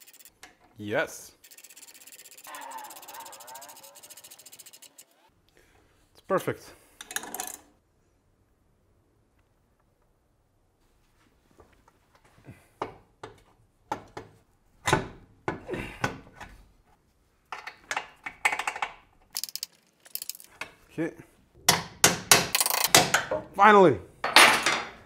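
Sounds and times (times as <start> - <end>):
tools knocking and clinking: 7.0 - 7.7, 17.5 - 20.8, 21.7 - 23.5, 24.2 - 25.0.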